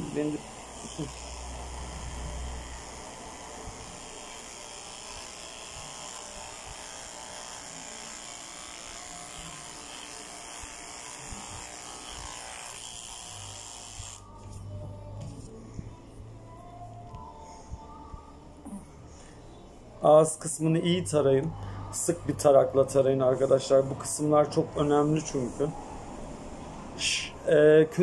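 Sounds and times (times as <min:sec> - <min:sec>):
electric clippers running: 0:00.0 - 0:15.5.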